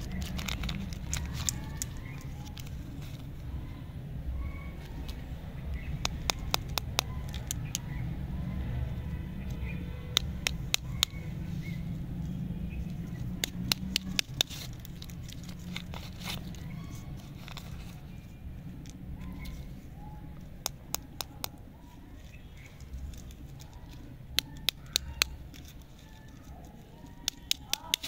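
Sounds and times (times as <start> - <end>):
wrapper crinkling and tearing: 0.0 - 3.3, 13.1 - 18.2.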